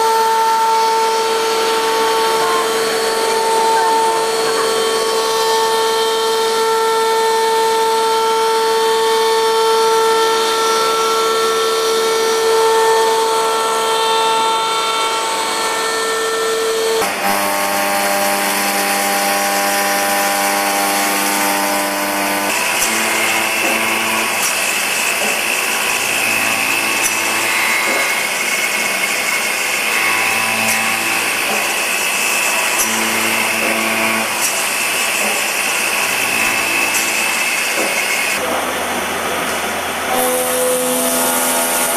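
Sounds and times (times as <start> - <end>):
cutter hissing in metal: 18.4 - 38.4.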